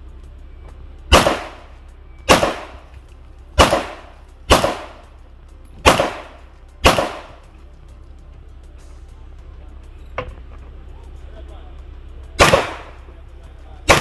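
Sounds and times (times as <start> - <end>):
handgun shots with echo: 1.1 - 1.7, 2.3 - 2.9, 3.6 - 5.0, 5.8 - 7.4, 12.4 - 13.0.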